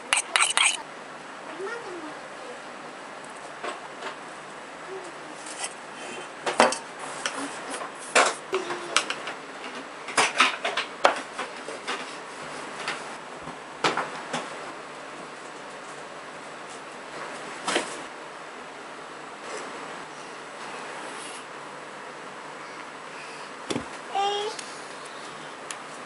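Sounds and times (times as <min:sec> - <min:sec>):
cake tin clinking: 0:00.0 - 0:00.8
knife tapping and scraping: 0:00.0 - 0:00.8.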